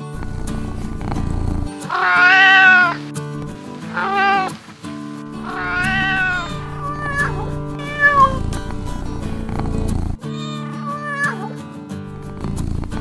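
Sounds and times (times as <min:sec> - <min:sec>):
background music held notes: 0:00.0 - 0:13.0
cat meowing: 0:01.8 - 0:03.1, 0:03.8 - 0:04.7, 0:05.3 - 0:08.8, 0:10.2 - 0:11.6.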